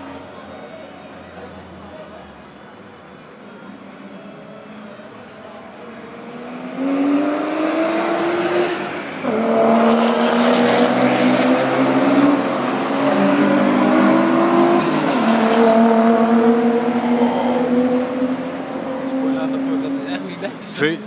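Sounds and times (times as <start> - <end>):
car engine revving hard: 6.6 - 19.3.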